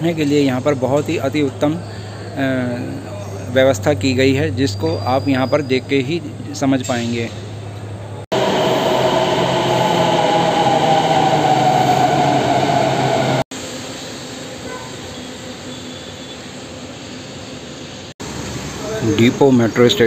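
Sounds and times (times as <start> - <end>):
steady background noise: 0.0 - 9.7, 13.6 - 20.0
metro train whine: 7.8 - 19.0.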